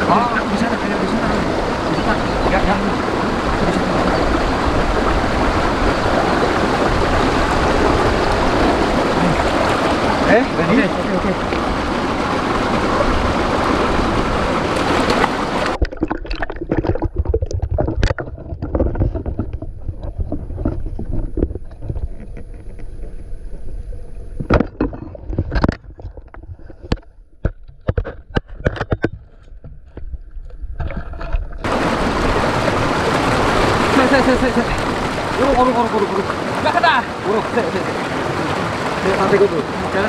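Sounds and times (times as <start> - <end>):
stream water rushing: 0.0 - 24.6, 31.2 - 40.0
muffled underwater rumble: 11.0 - 32.8
underwater clicks and knocks: 14.1 - 23.3, 24.4 - 31.7.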